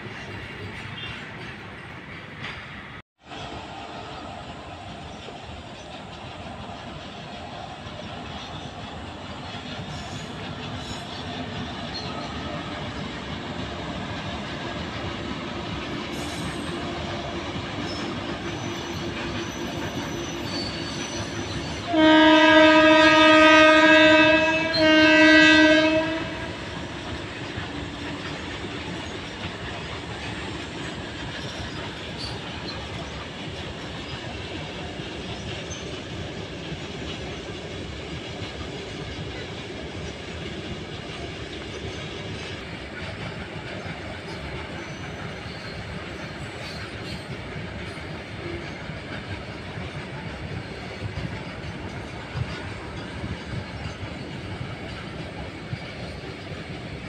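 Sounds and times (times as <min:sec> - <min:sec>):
freight train rolling: 0:00.0 - 0:57.0
locomotive horn blasts: 0:21.8 - 0:26.6.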